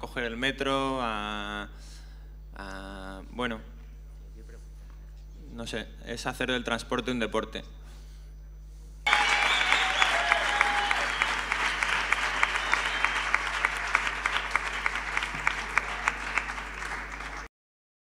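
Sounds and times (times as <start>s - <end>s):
audience applauding: 9.1s - 17.5s.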